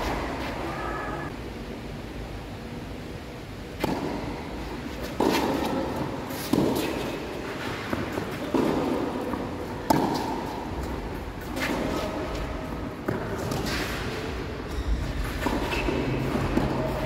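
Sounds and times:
tennis ball hit by rackets: 3.8s - 4.4s, 5.0s - 10.8s.

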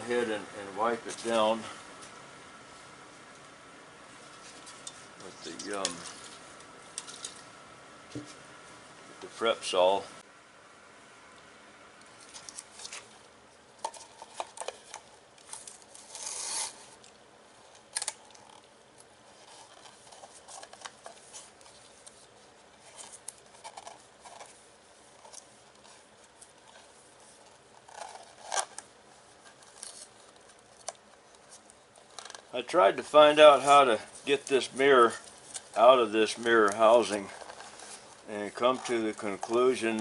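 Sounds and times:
tape rustling: 12.0s - 40.0s
masking tape ripping: 15.4s - 17.0s.

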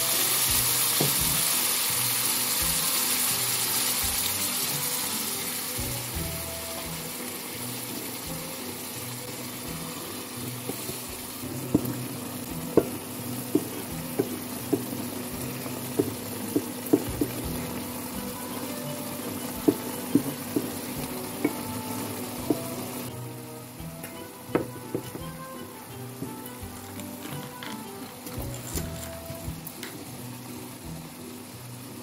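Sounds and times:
chicken sizzling in pan: 0.0s - 32.0s
wooden spatula taps: 12.7s - 15.1s, 15.9s - 17.6s, 19.6s - 21.6s, 22.4s - 22.7s.

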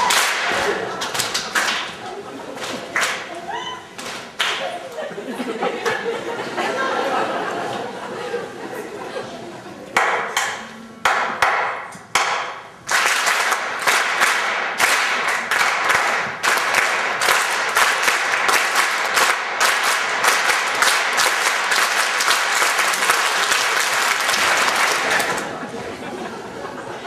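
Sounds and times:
audience clapping: 0.0s - 4.7s, 10.0s - 25.8s.

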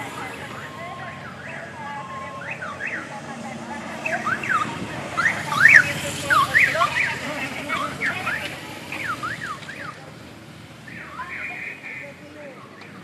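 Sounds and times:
motorcycle siren yelping: 0.0s - 10.1s.

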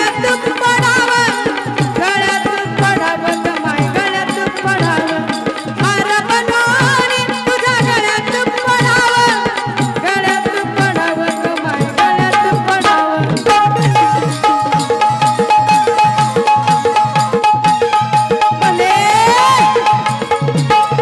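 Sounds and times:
hand drum rhythm: 0.0s - 21.0s
keyboard melody: 9.5s - 21.0s.

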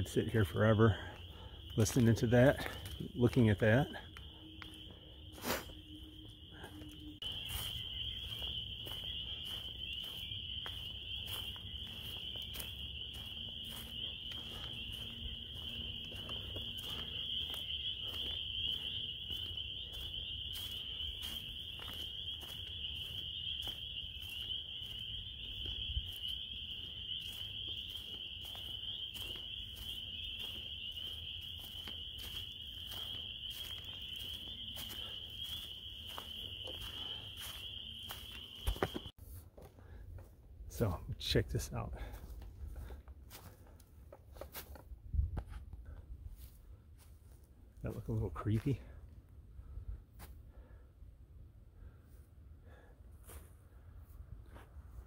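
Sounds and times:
frogs calling in chorus: 0.0s - 39.1s.

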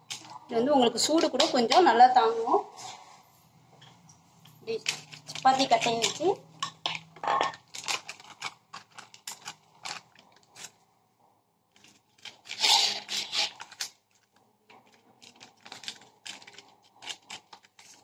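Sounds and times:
foil pouch crinkling: 4.7s - 6.3s, 7.6s - 10.8s, 11.7s - 18.0s
light clicks and crackles: 13.6s - 18.0s.

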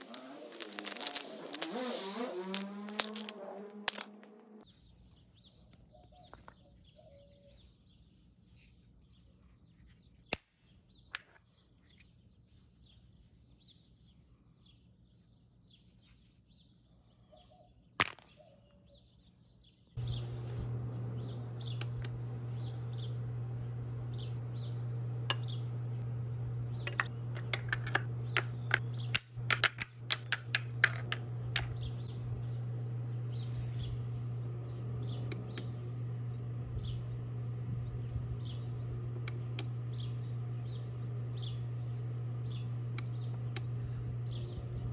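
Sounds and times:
faint bird chirps: 4.7s - 10.0s, 16.1s - 17.8s
steady low hum: 20.0s - 44.9s.

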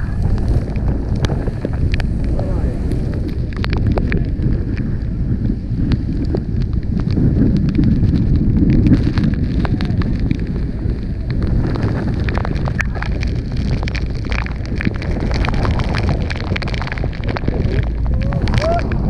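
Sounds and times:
spray crackling on the microphone: 0.0s - 19.0s
wind buffeting the microphone: 0.0s - 19.0s
waterfall roaring: 12.6s - 19.0s.

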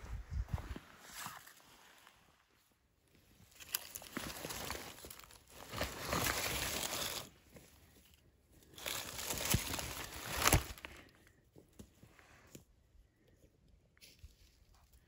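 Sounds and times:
leaves and gravel crunching: 3.2s - 11.1s.

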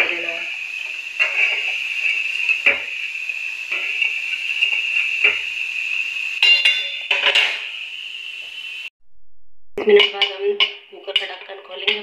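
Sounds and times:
steady hiss: 0.0s - 8.9s
metal spoon clinking against pan: 6.4s - 7.5s.

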